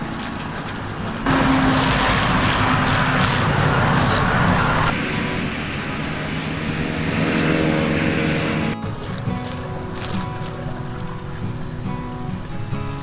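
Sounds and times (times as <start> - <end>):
water pouring into a pipe: 1.3 - 4.2.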